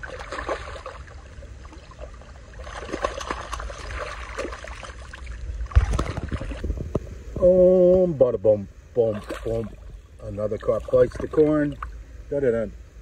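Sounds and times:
fish splashing in shallow water: 0:00.0 - 0:06.9, 0:09.0 - 0:12.0.

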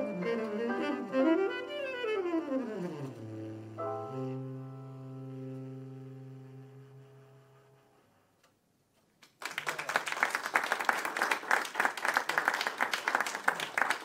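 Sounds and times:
audience clapping: 0:09.2 - 0:14.0.

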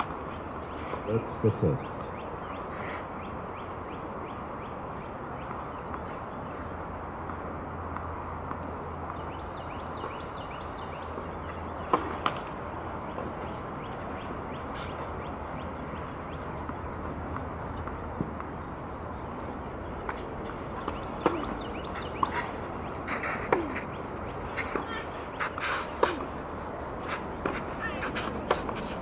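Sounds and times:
racket hitting tennis ball: 0:11.4 - 0:12.6, 0:20.1 - 0:29.0.

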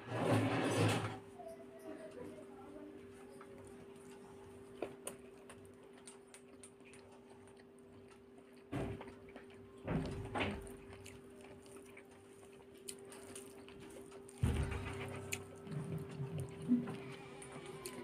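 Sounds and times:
fingers mashing food squelches: 0:03.6 - 0:18.0
mouth clicks while chewing: 0:03.6 - 0:18.0.

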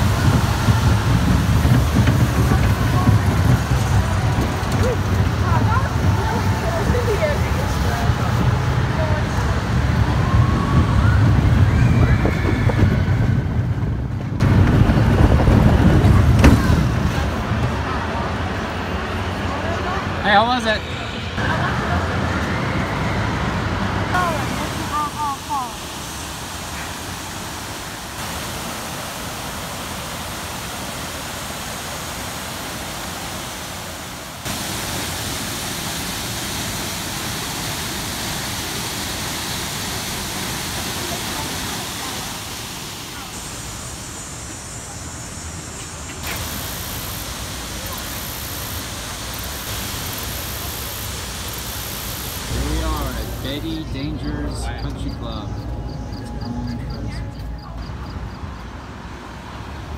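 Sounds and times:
waterfall rushing: 0:00.0 - 0:12.6, 0:21.4 - 0:55.4
wind buffeting microphone: 0:00.0 - 0:18.3
roller coaster rumbling on track: 0:00.0 - 0:35.2, 0:35.8 - 0:59.9.

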